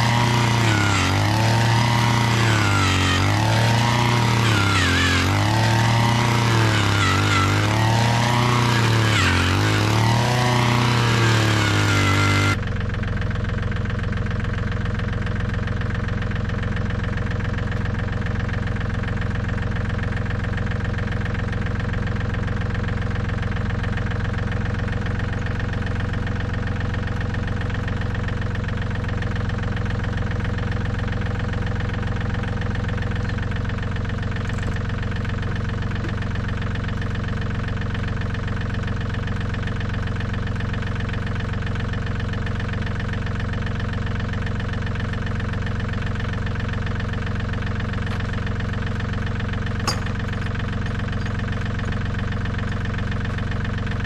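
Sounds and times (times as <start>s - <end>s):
tractor diesel engine idling: 0.0s - 11.5s, 12.5s - 54.0s
engine revving: 0.0s - 12.6s.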